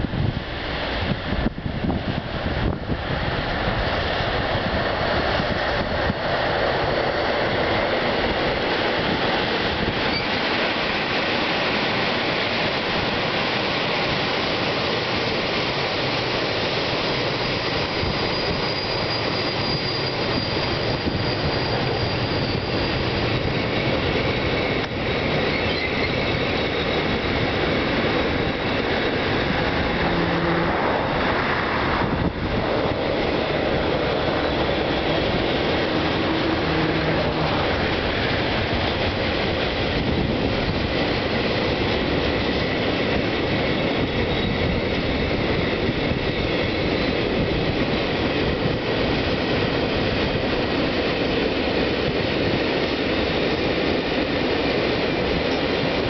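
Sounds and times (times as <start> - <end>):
freight train rolling past: 0.0 - 56.0
high wheel squeal: 10.0 - 10.5, 16.7 - 39.0, 43.4 - 47.5.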